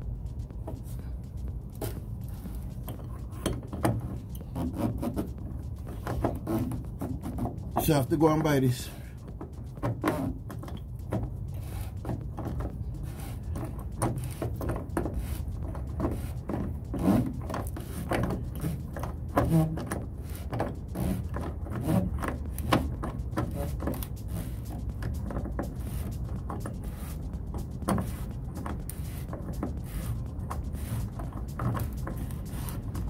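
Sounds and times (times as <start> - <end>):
low rumble: 0.0 - 33.0.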